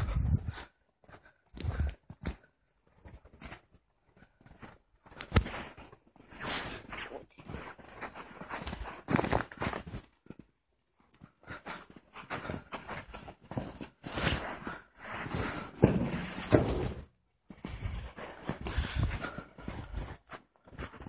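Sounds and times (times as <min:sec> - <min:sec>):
footsteps crunching in snow: 0:01.6 - 0:10.1.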